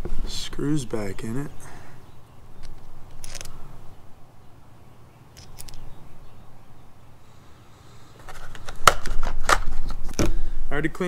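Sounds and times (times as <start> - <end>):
small screws clicking: 2.6 - 3.6, 5.4 - 5.9.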